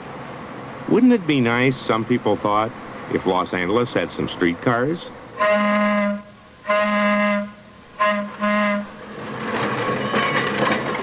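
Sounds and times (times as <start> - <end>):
railcar rolling rumble: 0.0 - 11.0
railcar air horn blasts: 5.4 - 9.0.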